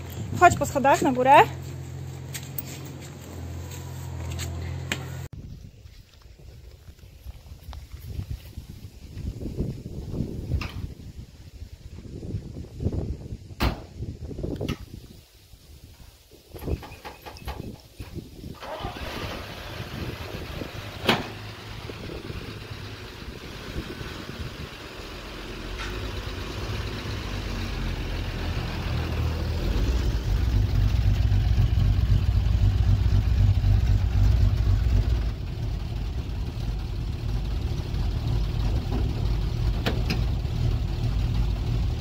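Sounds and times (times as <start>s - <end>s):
pickup engine idling: 18.7s - 27.0s, 27.8s - 42.0s.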